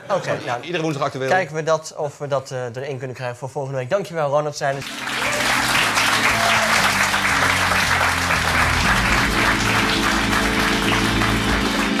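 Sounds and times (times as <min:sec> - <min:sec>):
outro music with low bass line: 0:04.8 - 0:12.0
studio audience applauding: 0:04.8 - 0:12.0.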